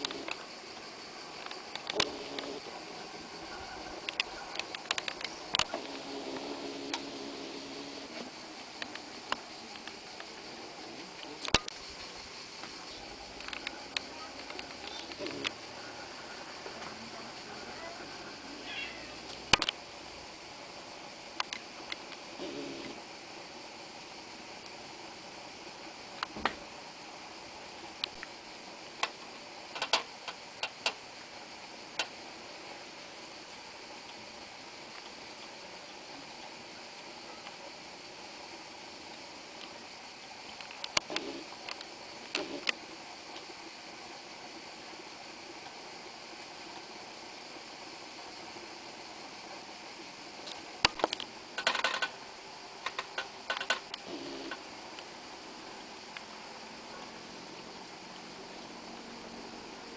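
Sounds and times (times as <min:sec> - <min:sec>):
steady hiss: 0:00.0 - 0:59.9
handling clicks and rustles: 0:50.4 - 0:52.2, 0:52.8 - 0:55.1.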